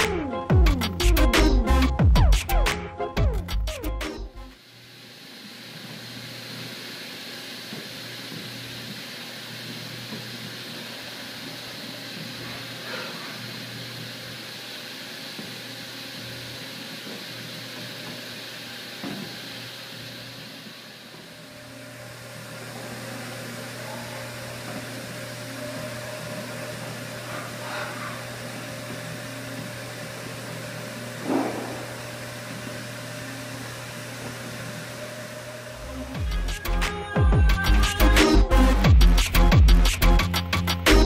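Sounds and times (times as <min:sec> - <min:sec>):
machine hum: 0:00.0 - 0:41.0
coolant hissing: 0:04.6 - 0:36.8.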